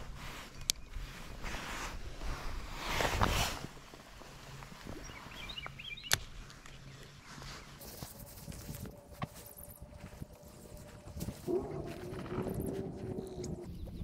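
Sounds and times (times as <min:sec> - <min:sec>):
rustling handling noise: 0:06.4 - 0:13.8.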